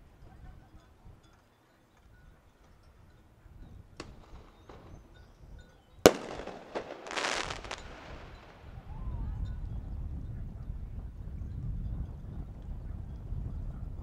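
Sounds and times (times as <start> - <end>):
crackling burst: 6.1 - 8.8.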